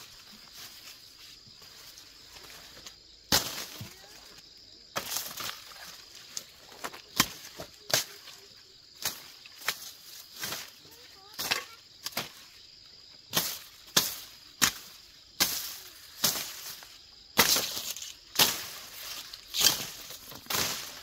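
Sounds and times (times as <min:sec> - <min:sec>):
insect drone: 0:00.0 - 0:21.0
hand tools cutting grass: 0:09.0 - 0:12.5, 0:13.3 - 0:21.0.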